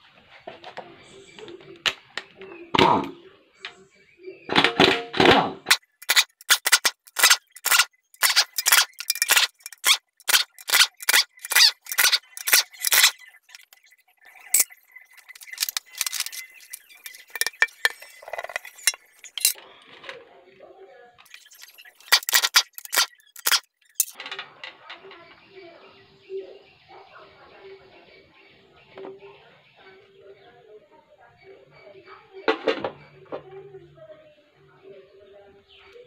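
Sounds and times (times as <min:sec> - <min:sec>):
metal tools clinking on oil pan: 0:06.0 - 0:13.2, 0:14.5 - 0:19.6.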